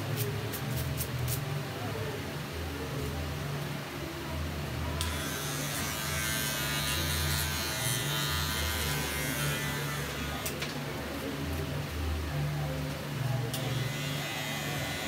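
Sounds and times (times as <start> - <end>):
hair clipper buzzing: 5.0 - 10.6, 13.6 - 15.0.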